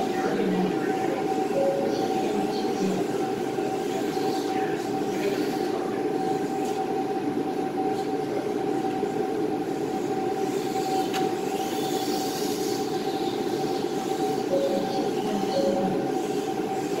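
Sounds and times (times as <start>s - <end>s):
mechanical drone with constant tone: 0.0s - 17.0s.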